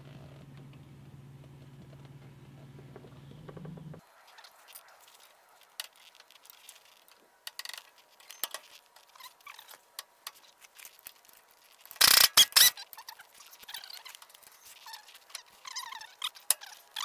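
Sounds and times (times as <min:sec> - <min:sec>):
hand tool noise burst: 0:12.0 - 0:12.8.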